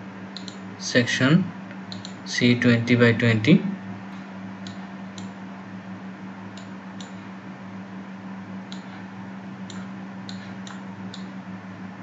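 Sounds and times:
low hum and hiss: 0:00.0 - 0:12.0
computer mouse clicking: 0:00.4 - 0:00.6, 0:01.9 - 0:02.2.

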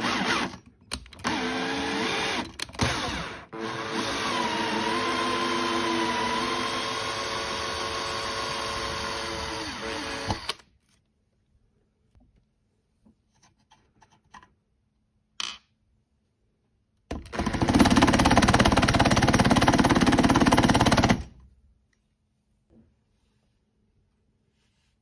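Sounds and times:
cordless drill running: 0:00.0 - 0:00.6, 0:01.2 - 0:10.6, 0:17.3 - 0:21.3.

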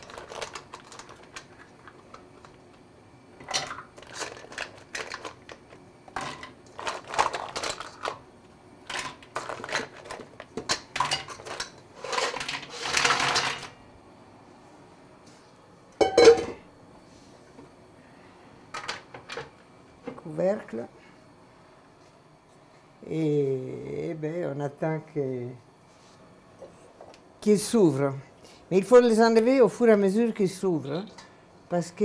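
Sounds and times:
mussel shells clattering into pan: 0:00.0 - 0:02.6, 0:03.4 - 0:08.2, 0:08.8 - 0:13.8.

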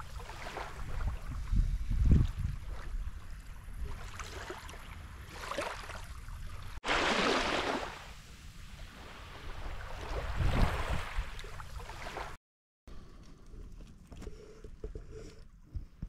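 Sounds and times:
small waves washing on sand: 0:00.0 - 0:01.5, 0:06.8 - 0:12.4
low wind rumble on microphone: 0:00.7 - 0:04.0.

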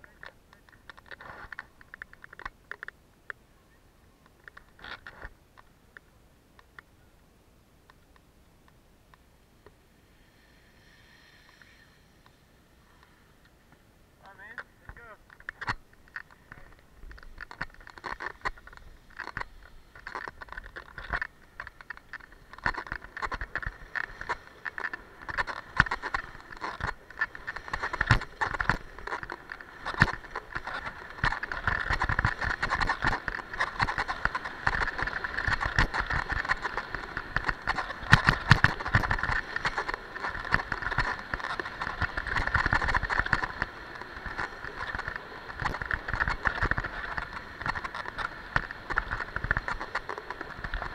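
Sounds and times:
skis scraping on snow: 0:17.9 - 0:50.9.

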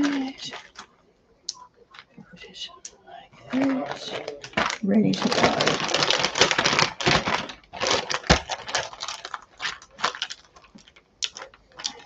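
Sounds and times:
plastic bag crinkling: 0:00.0 - 0:01.0, 0:03.5 - 0:12.0.

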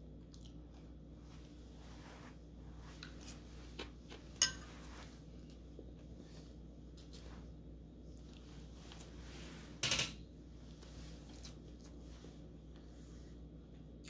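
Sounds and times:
low steady hum: 0:00.0 - 0:14.0
fork clinking against ceramic bowl: 0:04.4 - 0:04.7.

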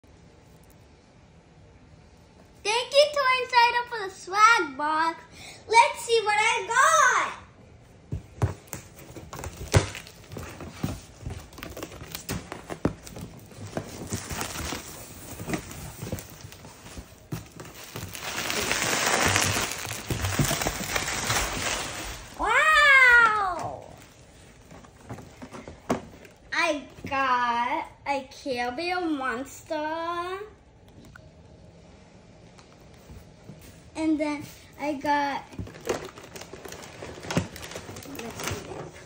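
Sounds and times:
plastic rustling: 0:08.1 - 0:26.5, 0:35.4 - 0:39.0
bubble wrap crackling: 0:08.6 - 0:25.3, 0:35.5 - 0:39.0.

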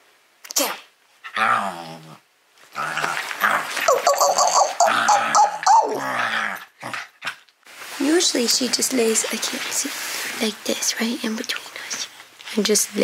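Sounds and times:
dog whining and growling: 0:01.2 - 0:07.1.

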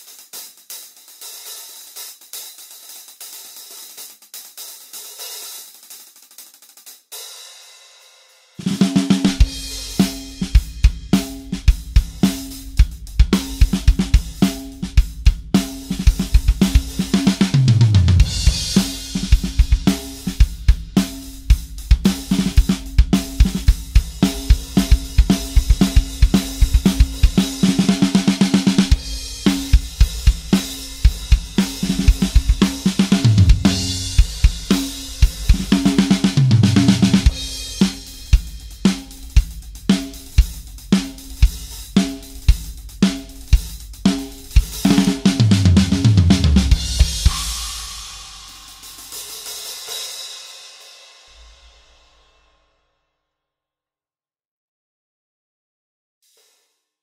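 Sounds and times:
snare drum: 0:00.0 - 0:07.7, 0:08.6 - 0:51.4
hi-hats: 0:00.0 - 0:07.9, 0:09.2 - 0:17.6, 0:18.2 - 0:46.0, 0:46.7 - 0:50.2
tom fills: 0:15.6 - 0:49.9.

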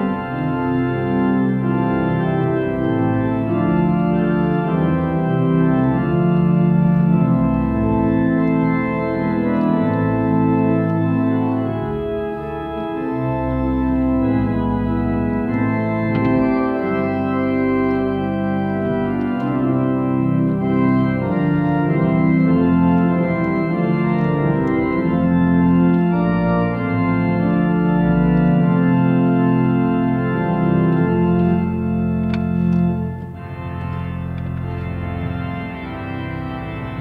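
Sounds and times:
pipe organ playing chords: 0:00.0 - 0:37.0.

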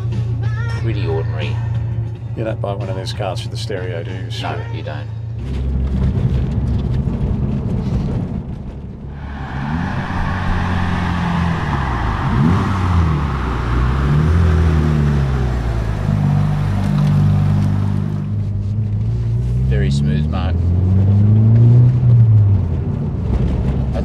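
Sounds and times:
car engine revving: 0:09.1 - 0:22.9.

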